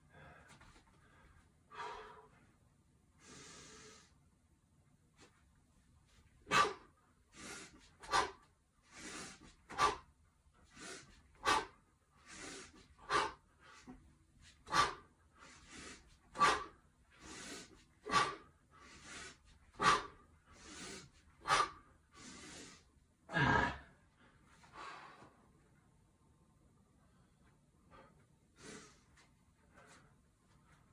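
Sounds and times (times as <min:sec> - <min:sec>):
man breathing out sharply: 0:00.0 - 0:02.3
man breathing in softly: 0:03.2 - 0:04.2.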